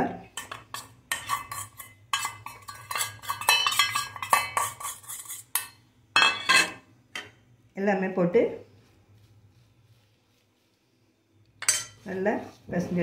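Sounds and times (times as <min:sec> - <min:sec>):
metal bowl clinking against a pan: 0:00.3 - 0:07.4, 0:11.6 - 0:12.0.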